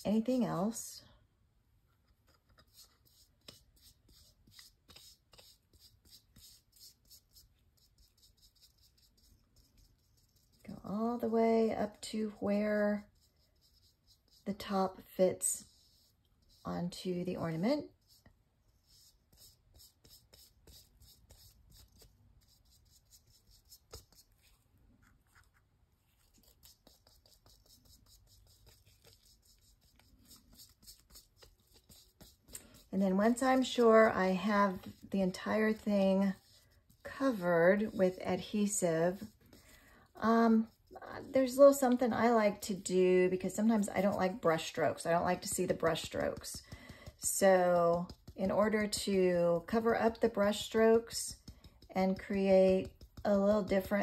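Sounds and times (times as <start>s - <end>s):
foam brush swishing on plastic: 2.7s - 54.0s
foam brush strokes: 15.4s - 39.7s.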